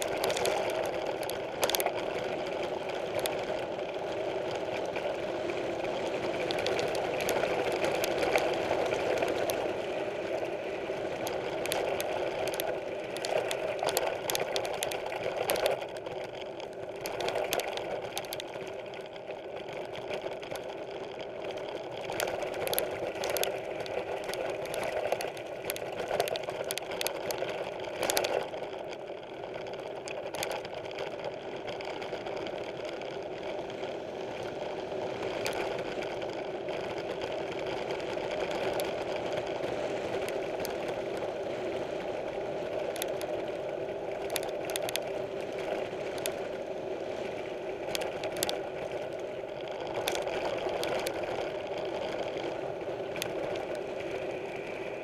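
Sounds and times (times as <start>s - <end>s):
mountain bike rolling on dirt: 0.0s - 55.0s.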